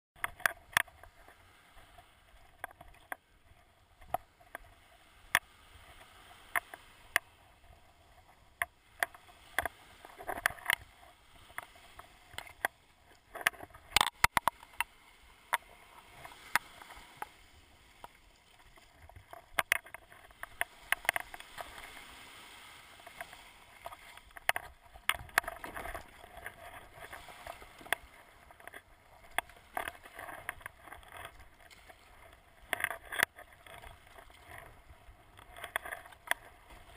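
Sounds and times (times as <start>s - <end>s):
paddle strokes splashing: 0.2s - 36.9s
surf washing: 0.2s - 36.9s
kayak knocks and taps: 8.6s - 14.9s.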